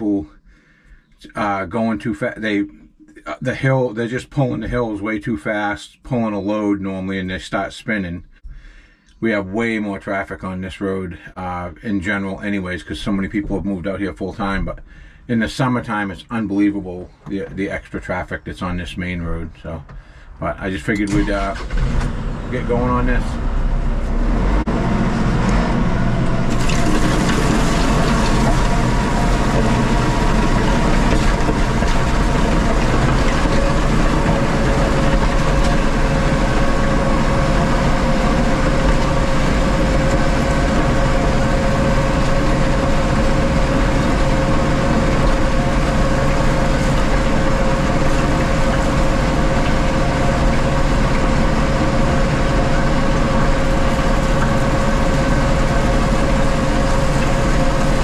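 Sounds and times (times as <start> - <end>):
constant whine: 8.3 - 58.0
tractor engine running: 20.8 - 58.0.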